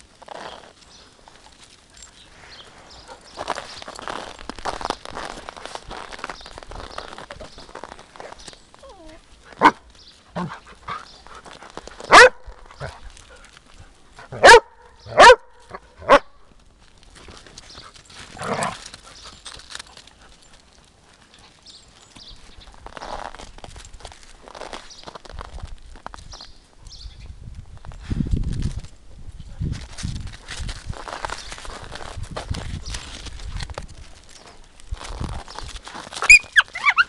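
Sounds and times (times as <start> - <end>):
footsteps crunching on snow: 0.0 - 14.4, 16.7 - 26.7, 29.6 - 37.0
dog barking: 9.6 - 9.8, 12.1 - 12.4, 14.3 - 16.3.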